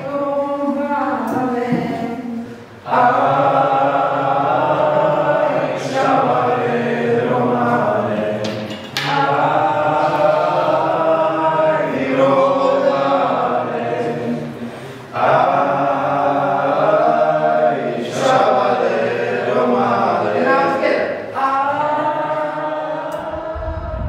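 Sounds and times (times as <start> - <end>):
person singing long held notes: 19.5 - 24.0.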